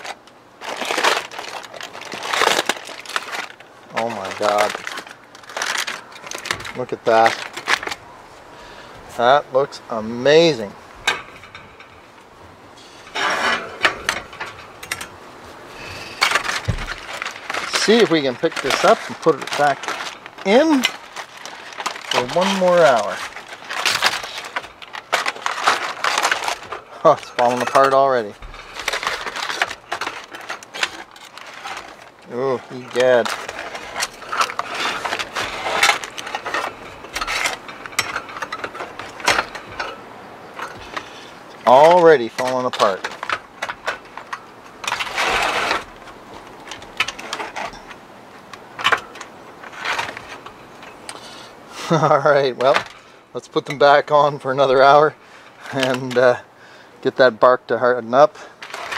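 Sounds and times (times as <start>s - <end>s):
aluminium foil crinkling: 0.0s - 9.3s, 13.0s - 56.4s, 57.1s - 58.9s
metal rack scraping on tile: 12.8s - 15.1s.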